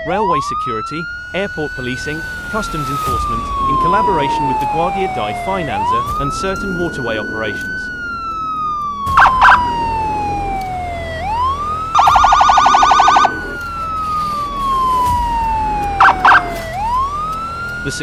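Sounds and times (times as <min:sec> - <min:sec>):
police siren wailing: 0:00.0 - 0:18.0
siren short loud blasts: 0:08.3 - 0:17.5.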